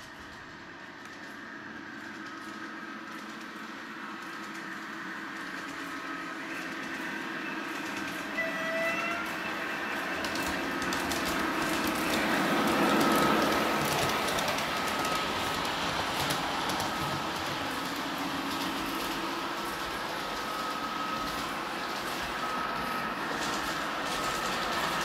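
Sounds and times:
model train motor humming: 0:00.0 - 0:25.0
wheels clicking over rail joints: 0:00.0 - 0:25.0
brief tone: 0:07.4 - 0:14.0.

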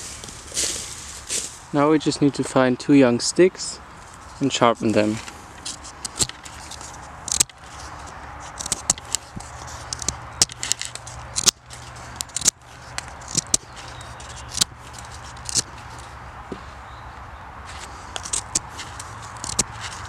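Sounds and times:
knife scraping wood: 0:04.0 - 0:16.1, 0:17.7 - 0:20.0.

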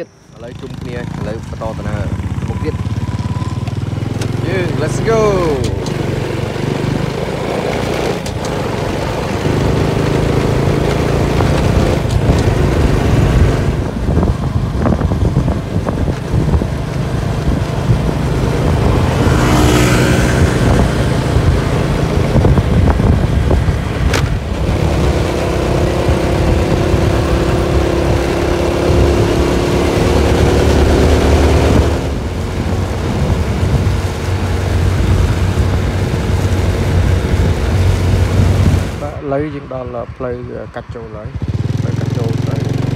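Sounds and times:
motorbike engine running: 0:00.4 - 0:39.1, 0:40.8 - 0:42.9
wind rumble on microphone: 0:05.1 - 0:42.9.

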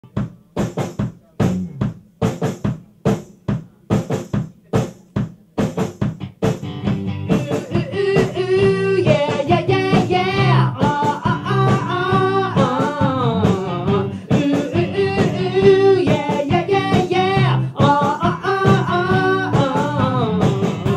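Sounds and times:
rock band playing: 0:05.6 - 0:20.9
person singing: 0:07.3 - 0:20.9.

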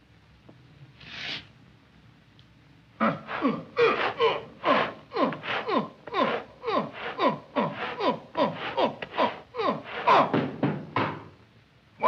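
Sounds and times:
breathy hiss: 0:03.0 - 0:10.3
short falling vocal cries: 0:03.0 - 0:10.4.

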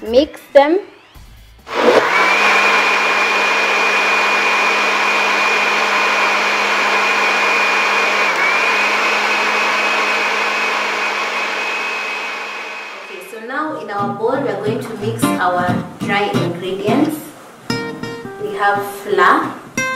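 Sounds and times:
blender running: 0:00.5 - 0:13.4.

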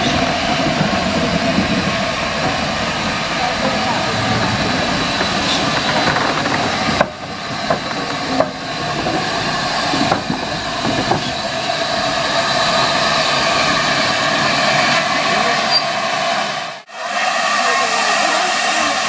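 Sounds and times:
rumble of train wheels: 0:00.0 - 0:19.0
steam locomotive passing: 0:00.0 - 0:19.0
sharp knocks: 0:04.2 - 0:08.6
hiss of steam: 0:09.2 - 0:19.0.

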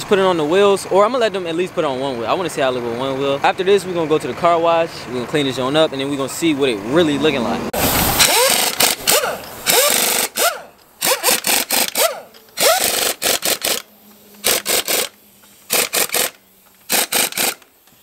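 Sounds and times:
pneumatic impact wrench bursts: 0:07.8 - 0:18.0.

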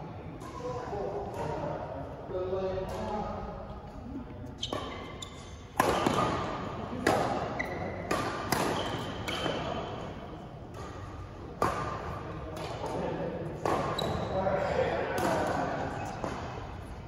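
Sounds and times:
sneakers squeaking on wooden court: 0:04.5 - 0:06.3, 0:07.4 - 0:09.9, 0:13.8 - 0:14.4
rackets hitting shuttlecock: 0:04.6 - 0:14.2.

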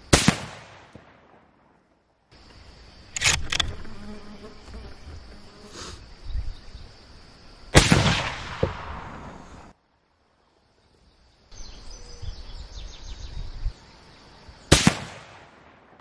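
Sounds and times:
rifle shot with echo: 0:00.0 - 0:01.6, 0:07.8 - 0:09.7, 0:14.7 - 0:16.0
insects buzzing: 0:01.6 - 0:16.0
sharp clicks: 0:03.1 - 0:03.8.

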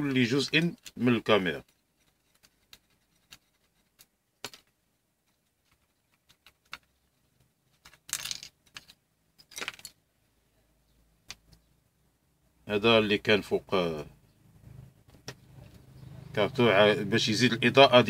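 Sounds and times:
parts clattering: 0:00.0 - 0:10.1
plastic parts clicking and tapping: 0:00.1 - 0:10.0.

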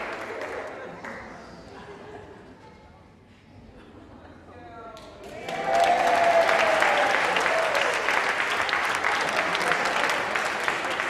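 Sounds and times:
audience clapping: 0:00.0 - 0:01.4, 0:05.0 - 0:11.0.

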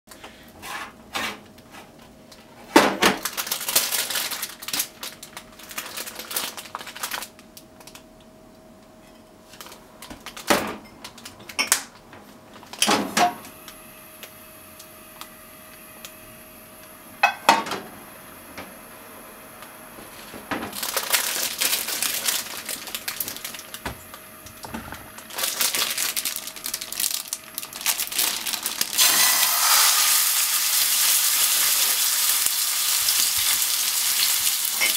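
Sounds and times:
plastic packaging crinkling: 0:03.2 - 0:08.0, 0:09.5 - 0:11.6, 0:20.7 - 0:34.9
meat sizzling in oil: 0:28.9 - 0:34.9
gas burner clicking and hissing: 0:29.0 - 0:34.9.

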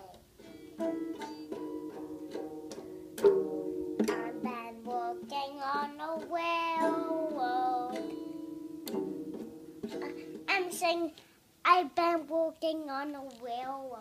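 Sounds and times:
child singing: 0:00.0 - 0:00.2, 0:04.0 - 0:08.4, 0:10.0 - 0:14.0
toy acoustic guitar strumming: 0:00.0 - 0:13.7.

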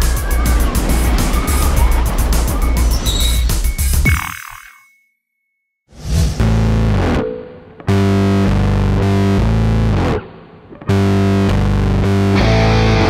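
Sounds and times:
distorted electric guitar chords: 0:06.4 - 0:13.0.

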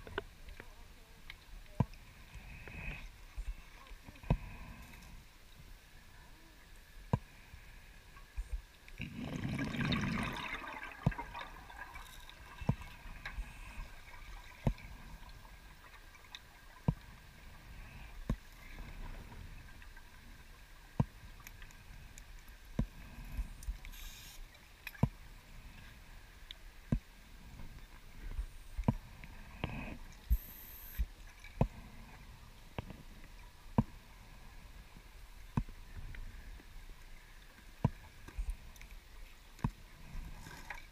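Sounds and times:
gas bubbling underwater: 0:09.0 - 0:15.4.

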